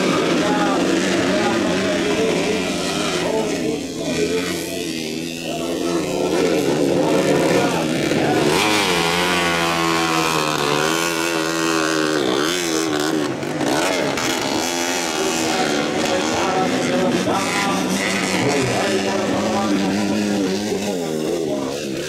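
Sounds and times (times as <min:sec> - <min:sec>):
motorcycle engines revving: 0:00.0 - 0:22.0.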